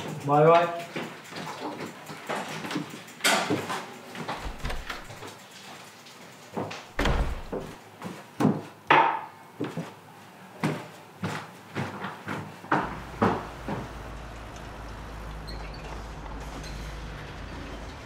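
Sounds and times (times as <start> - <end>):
knocks and thuds in a room: 4.3 - 5.2, 6.6 - 7.8.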